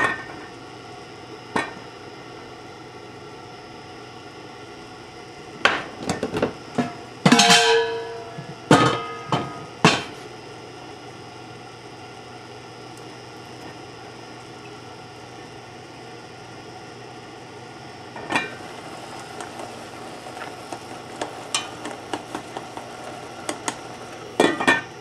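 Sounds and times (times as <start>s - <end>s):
pans and pot lid clattering: 7.3s - 10.1s, 24.4s - 24.9s.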